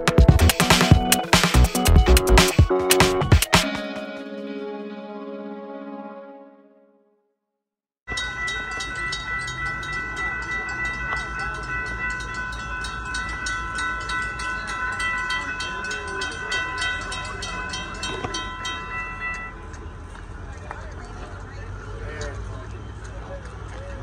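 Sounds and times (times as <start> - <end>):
crossing warning bell ringing: 8.1 - 21.2.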